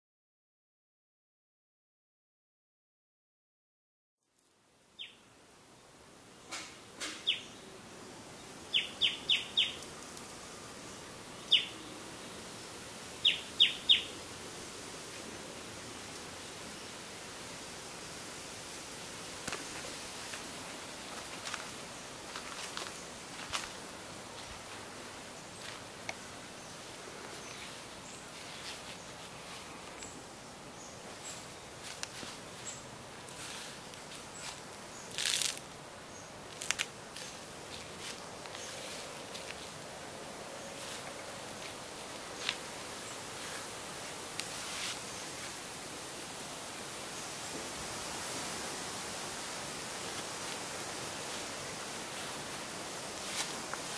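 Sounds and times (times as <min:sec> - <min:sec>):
steady background hiss: 0:04.3 - 0:53.9
bird chirping: 0:05.0 - 0:05.2, 0:07.1 - 0:07.6, 0:08.7 - 0:09.8, 0:11.4 - 0:12.0, 0:13.2 - 0:14.2.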